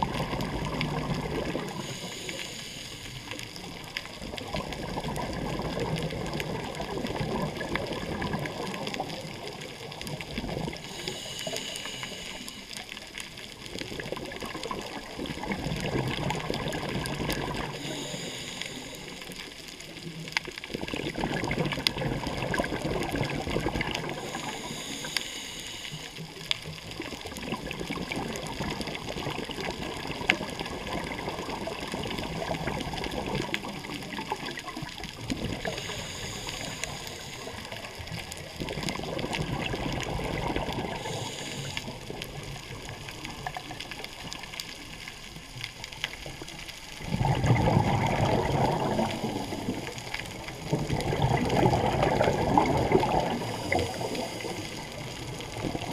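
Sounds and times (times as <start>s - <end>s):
bubbling exhale underwater: 0.0s - 55.9s
hissing regulator inhale: 1.6s - 3.7s, 10.8s - 13.1s, 17.6s - 19.5s, 24.0s - 26.5s, 35.5s - 38.0s, 40.5s - 42.2s, 53.0s - 55.1s.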